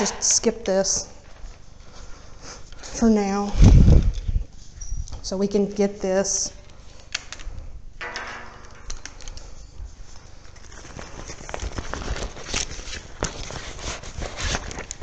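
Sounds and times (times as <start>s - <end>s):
fabric rustling on microphone: 9.8s - 15.0s.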